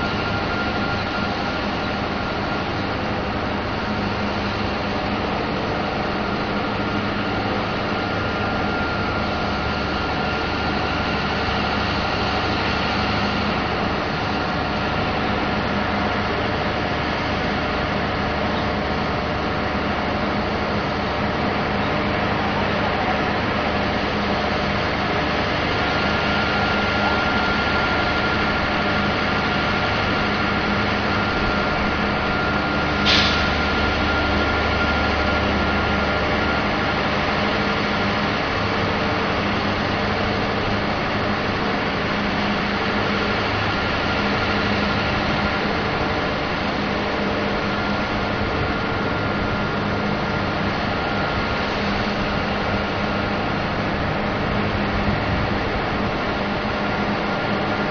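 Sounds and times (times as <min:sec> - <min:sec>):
heavy engine running under load: 0:00.0 - 0:57.9
short hiss: 0:33.1 - 0:33.4.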